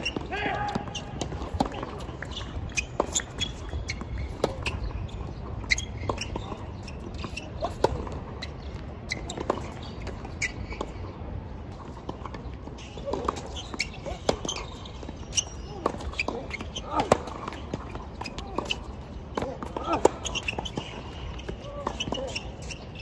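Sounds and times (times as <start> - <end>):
tennis balls struck and bouncing: 0.0 - 23.0
short high squeaks: 2.2 - 7.8, 12.8 - 18.9, 19.8 - 23.0.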